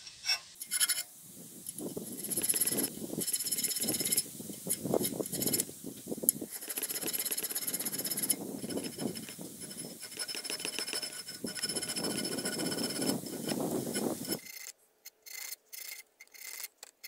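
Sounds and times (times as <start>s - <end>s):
hand file rasping on steel: 1.7s - 14.7s.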